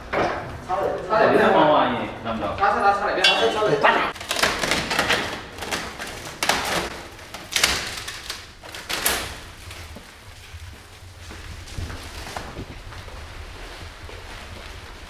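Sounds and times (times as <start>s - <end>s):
plastic wrap crinkling: 4.1s - 15.0s.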